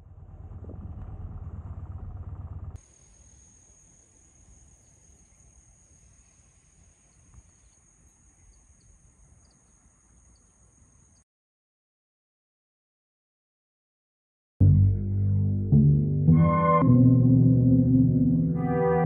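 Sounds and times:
insects shrilling: 2.8s - 11.2s
low outdoor hiss: 2.8s - 11.2s.

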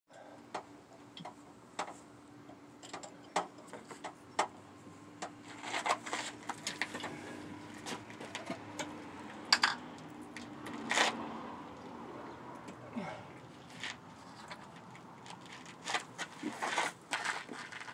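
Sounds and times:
tools and metal parts clinking: 2.8s - 4.2s.

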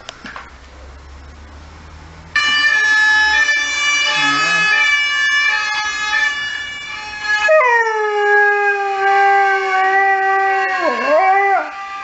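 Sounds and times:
emergency vehicle siren: 2.3s - 12.0s
dog howling: 7.5s - 11.8s.

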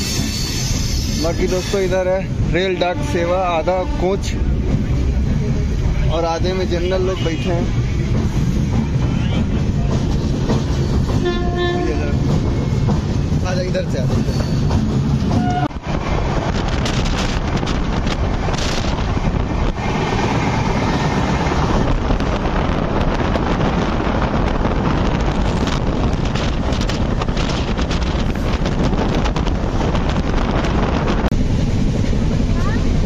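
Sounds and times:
train clatter: 0.0s - 33.0s
train rumbling on track: 0.0s - 33.0s
wind rushing over microphone: 14.7s - 33.0s.

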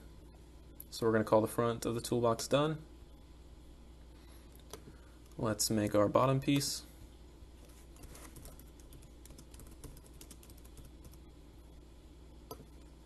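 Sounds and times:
faint keyboard typing: 7.6s - 11.3s, 12.5s - 12.9s.

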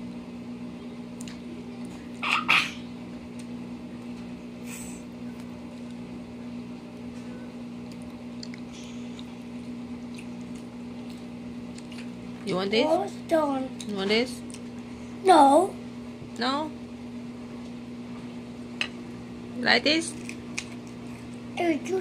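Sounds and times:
low electrical hum: 0.0s - 22.0s
child chewing food: 7.8s - 12.2s.

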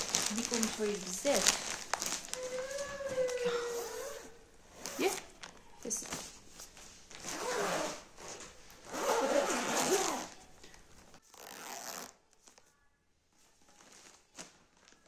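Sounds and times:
plastic bag zipper closing: 1.4s - 5.2s, 7.2s - 10.4s, 11.3s - 12.2s.

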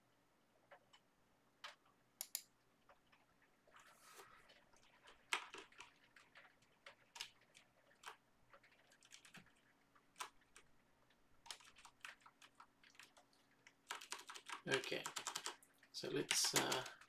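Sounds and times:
faint steady hum: 0.0s - 17.0s
computer keyboard typing: 4.4s - 10.7s, 11.4s - 17.0s.

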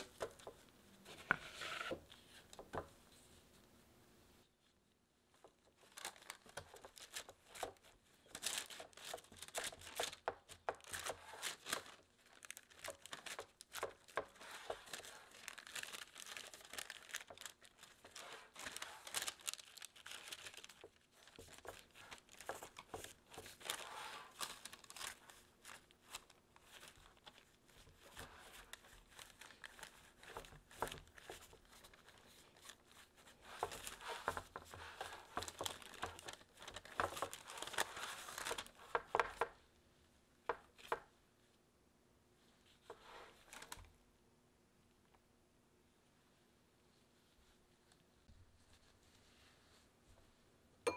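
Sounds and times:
disposable gloves rubbing: 0.0s - 3.5s
parchment paper crinkling: 0.0s - 3.6s, 4.6s - 39.6s, 40.4s - 41.2s, 42.4s - 44.0s, 46.9s - 50.3s.

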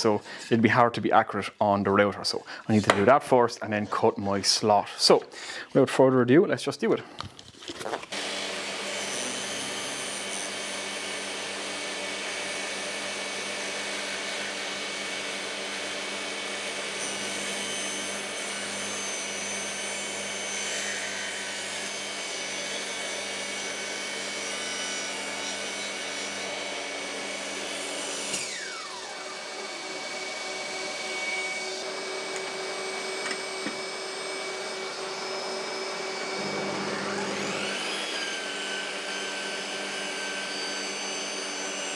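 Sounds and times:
table saw running: 8.1s - 41.9s
motor winding down whine: 28.3s - 30.0s, 31.6s - 40.9s.

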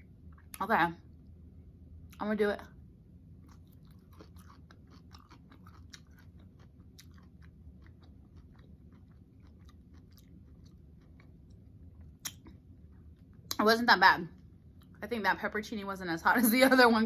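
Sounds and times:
close chewing with wet mouth clicks: 3.4s - 12.5s.

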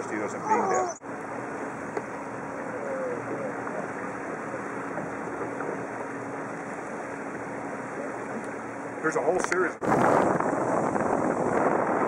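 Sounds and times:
boat motor humming: 0.0s - 12.0s
wind: 0.0s - 12.0s.

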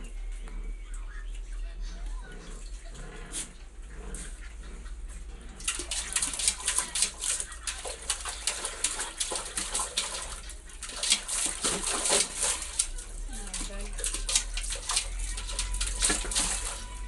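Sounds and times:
water splashing in metal pot: 5.6s - 17.0s.

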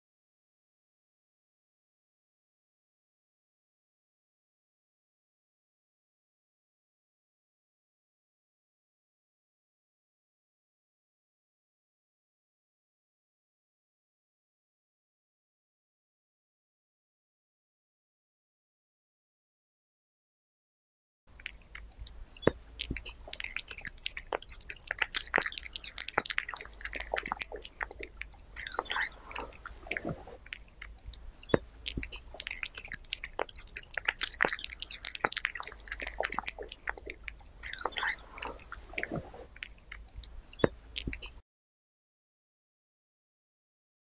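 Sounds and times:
cat chewing meat: 21.4s - 41.4s
teeth clicking: 21.4s - 41.4s.

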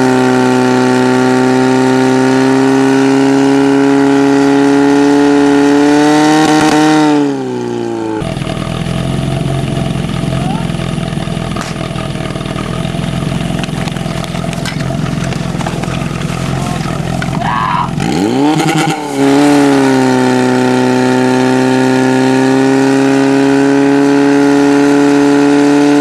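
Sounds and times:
fire pump engine: 7.3s - 25.8s.

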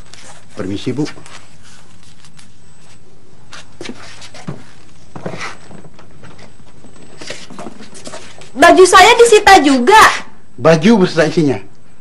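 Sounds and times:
faint footsteps: 0.0s - 8.6s
steady background hiss: 0.0s - 12.0s.

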